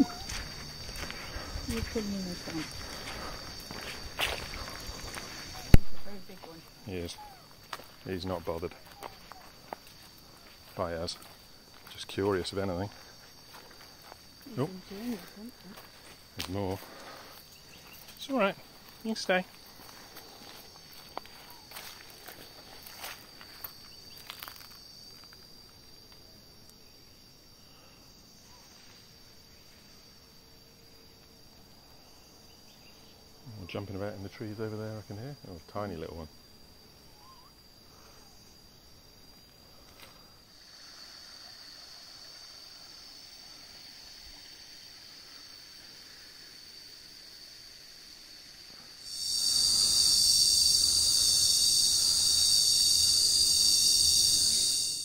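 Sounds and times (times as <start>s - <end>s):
cicadas droning: 0.0s - 55.0s
faint high insect hum: 0.0s - 55.0s.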